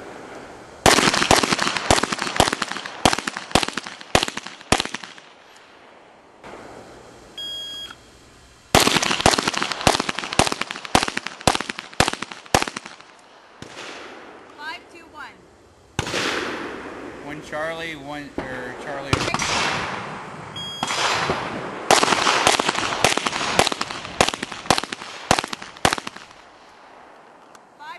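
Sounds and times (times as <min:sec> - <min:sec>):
rapid pistol fire: 0:00.8 - 0:05.8, 0:08.7 - 0:14.4, 0:16.0 - 0:17.2, 0:18.8 - 0:27.1
shot timer beep: 0:07.4 - 0:08.0, 0:20.6 - 0:20.9.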